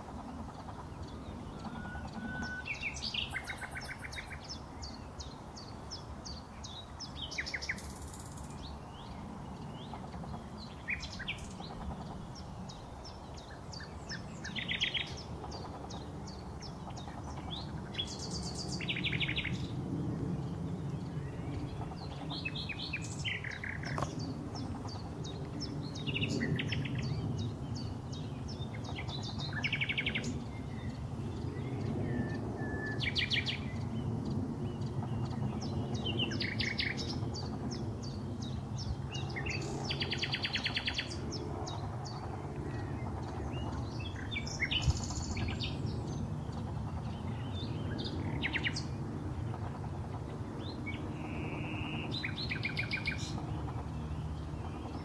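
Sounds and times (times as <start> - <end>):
nightingale singing: 1.4 - 5.0.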